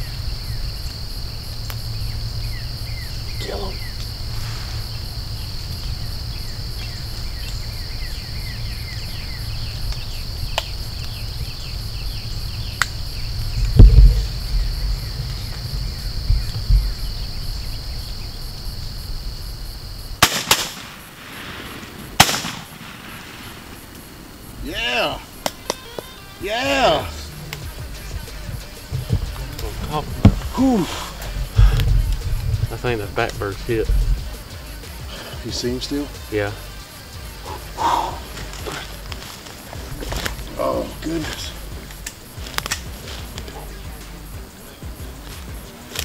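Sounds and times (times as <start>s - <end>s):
bird chirps: 0.0s - 19.2s
low rumble on microphone: 0.0s - 20.2s, 27.2s - 34.5s
high insect drone: 0.0s - 46.0s
heavy low thump: 11.4s - 19.4s, 27.6s - 34.6s.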